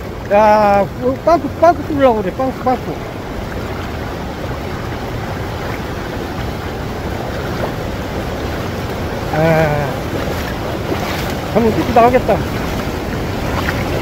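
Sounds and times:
water washing over stones: 0.0s - 14.0s
wind buffeting microphone: 0.0s - 14.0s.

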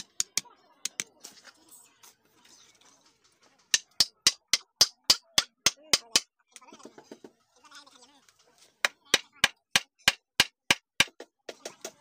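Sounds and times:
hammer rapping wooden strut: 3.7s - 6.3s, 8.8s - 11.3s.

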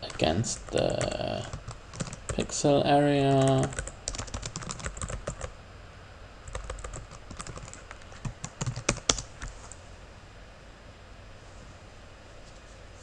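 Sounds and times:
computer keyboard typing: 0.0s - 2.6s, 3.3s - 5.5s, 6.4s - 9.5s.

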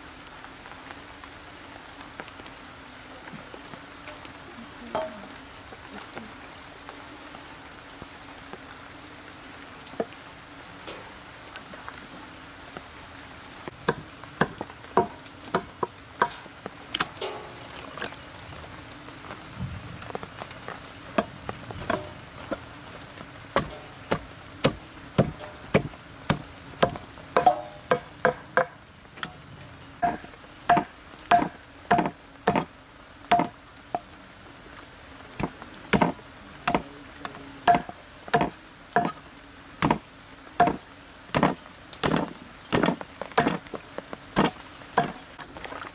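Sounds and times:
meat cleaver chopping on wood: 30.0s - 32.7s.

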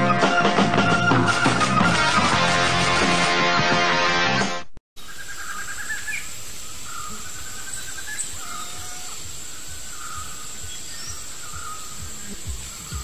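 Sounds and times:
commercial music: 0.0s - 4.8s
high insect whine: 5.0s - 13.0s
rapid chirping calls: 5.0s - 13.0s.

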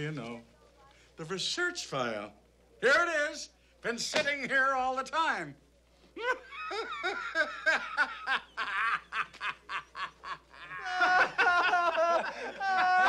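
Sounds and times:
group of men laughing: 6.2s - 13.0s
man laughing: 6.2s - 13.0s.

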